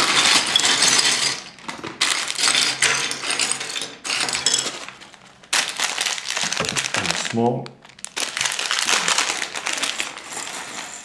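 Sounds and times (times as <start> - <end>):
plastic bag crinkling: 0.0 - 3.4, 4.0 - 11.0
plastic pieces rattling in bag: 0.0 - 11.0.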